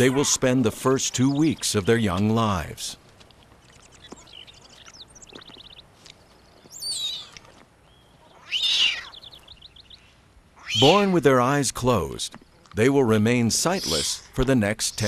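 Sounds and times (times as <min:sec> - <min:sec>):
cougar kittens chirping and mewing: 0:00.0 - 0:02.0, 0:03.6 - 0:05.8, 0:06.6 - 0:11.3, 0:13.6 - 0:15.0.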